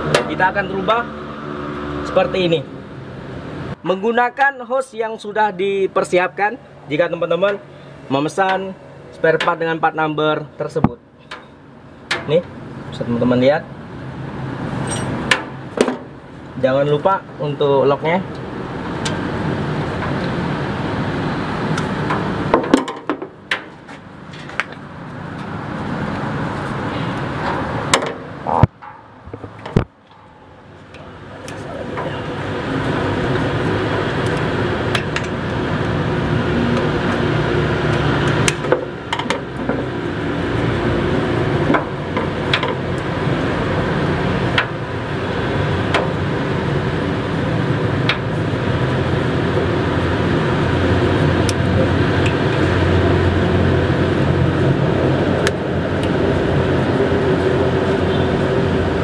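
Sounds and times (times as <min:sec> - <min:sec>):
mechanical background hum: 0:04.9 - 0:59.0
clicks and knocks of hose and pliers: 0:10.8 - 0:12.5, 0:21.7 - 0:25.6, 0:27.4 - 0:32.1, 0:34.2 - 0:35.5, 0:37.9 - 0:39.9, 0:41.7 - 0:43.1.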